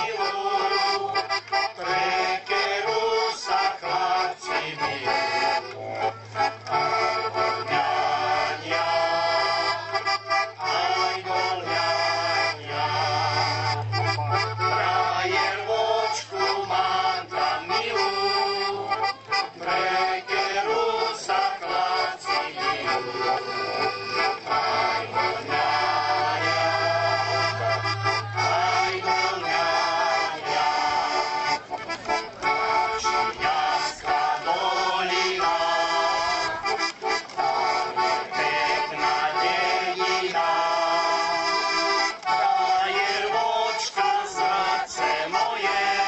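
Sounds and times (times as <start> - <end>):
women singing: 0.0 - 5.6, 7.7 - 10.2, 14.9 - 18.9, 19.7 - 23.0, 24.5 - 31.4, 33.4 - 41.4, 42.3 - 46.0
accordion: 0.0 - 46.0.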